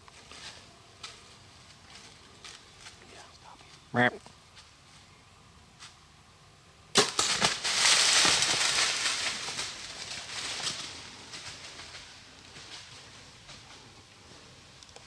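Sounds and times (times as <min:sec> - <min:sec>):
bow shot crack: 0:06.9 - 0:08.6
deer crashing through dry leaves: 0:07.0 - 0:13.7.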